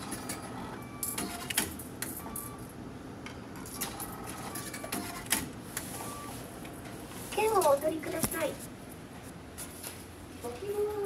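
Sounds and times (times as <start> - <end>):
ticket machine printing: 0.0 - 2.7, 3.5 - 6.5.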